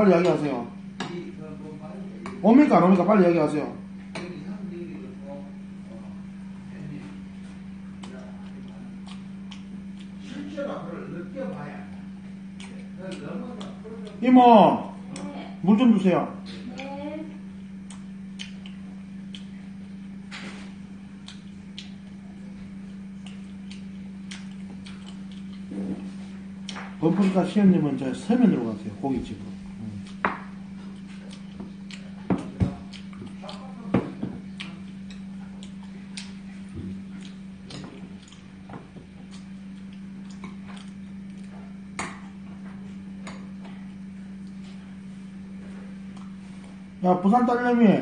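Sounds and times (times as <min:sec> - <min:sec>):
steady low hum: 0:00.0 - 0:48.0
chopsticks clicking against dishes: 0:17.9 - 0:19.5, 0:30.9 - 0:33.7.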